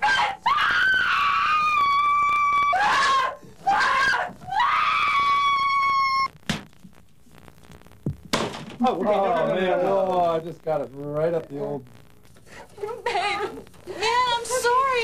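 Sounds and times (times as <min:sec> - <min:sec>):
high-pitched screams and cries: 0:00.0 - 0:06.4
sharp knock: 0:06.5 - 0:06.7, 0:08.0 - 0:08.8.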